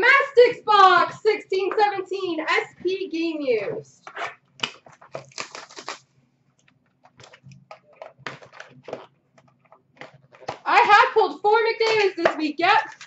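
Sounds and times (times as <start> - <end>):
wrapping and cardboard tearing: 4.7 - 6.1.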